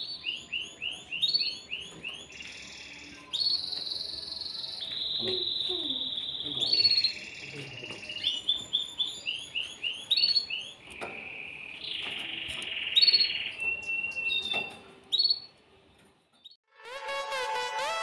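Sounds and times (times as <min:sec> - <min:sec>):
canary singing: 0:00.0 - 0:16.6.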